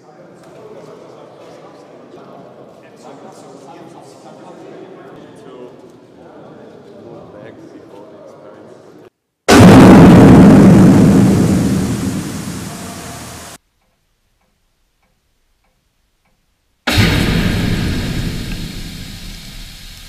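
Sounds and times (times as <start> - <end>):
water mist spray burst: 9.5 - 13.6, 16.9 - 20.0.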